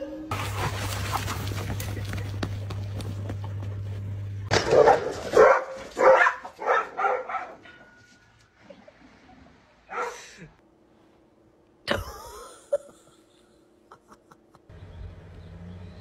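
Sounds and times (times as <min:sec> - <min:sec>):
steady low hum: 0:00.3 - 0:04.5
dog barking: 0:04.5 - 0:07.7, 0:09.9 - 0:10.2.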